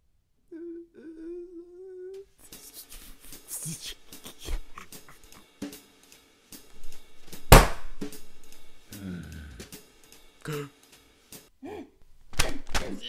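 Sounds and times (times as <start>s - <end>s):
drum kit hits: 7.5s - 8.2s.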